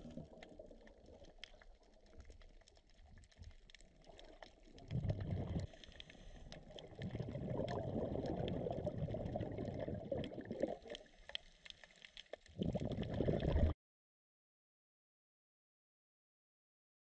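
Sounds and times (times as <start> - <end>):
diver's bubbles burbling: 4.5 - 5.8, 6.6 - 11.0, 12.5 - 13.8.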